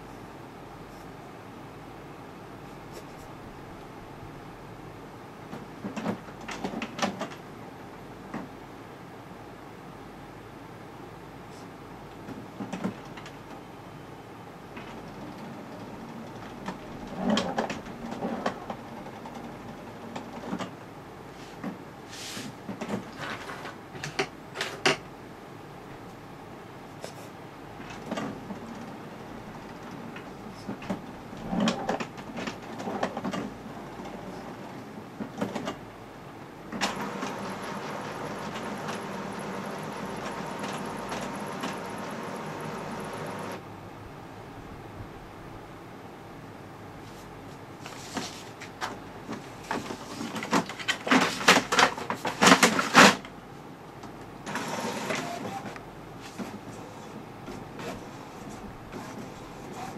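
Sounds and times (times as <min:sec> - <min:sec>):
steady printer hum: 0:00.0 - 0:24.5, 0:25.1 - 0:59.9
printer mechanism clicking and clunking: 0:05.5 - 0:07.4, 0:12.3 - 0:13.4, 0:36.7 - 0:43.6.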